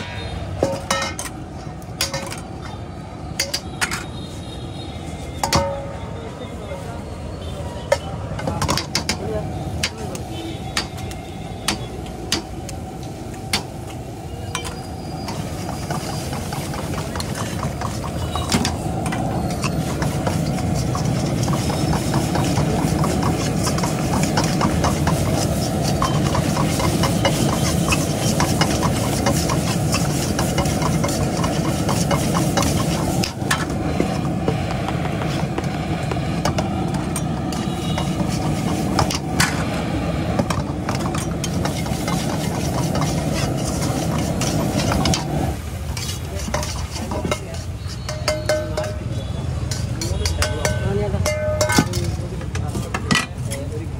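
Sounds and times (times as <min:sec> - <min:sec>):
metal spatula scraping a wok: 0:14.3 - 0:34.4, 0:36.4 - 0:39.8, 0:40.4 - 0:53.7.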